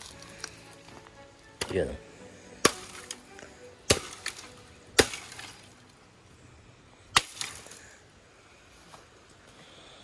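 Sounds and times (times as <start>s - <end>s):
knife chopping bamboo: 2.6s - 3.2s, 3.9s - 5.6s.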